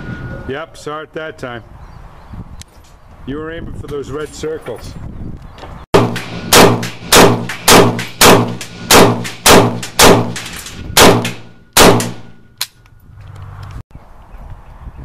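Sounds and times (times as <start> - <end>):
rifle shots with ringing echo: 6.0 - 12.6.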